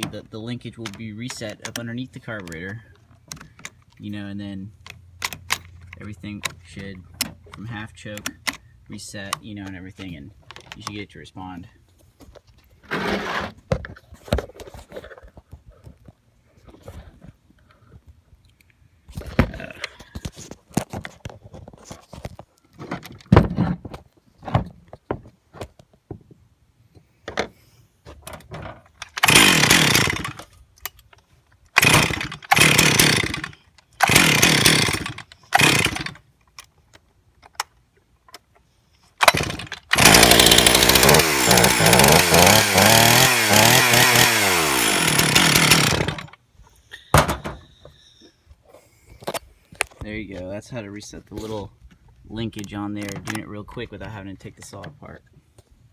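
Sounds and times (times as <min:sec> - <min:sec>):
handling knocks and clicks: 0:00.0 - 0:11.0, 0:51.8 - 0:55.7
chainsaw starting and running: 0:12.9 - 0:13.5, 0:29.0 - 0:30.5, 0:31.7 - 0:36.2, 0:39.2 - 0:46.4.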